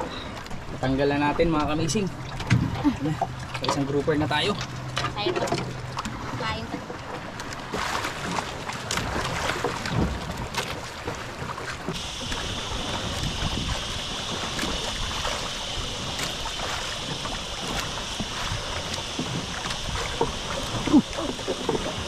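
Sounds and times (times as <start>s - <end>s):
sea water around boat: 0.0s - 22.0s
wind: 0.0s - 22.0s
steady high-pitched hiss: 12.0s - 22.0s.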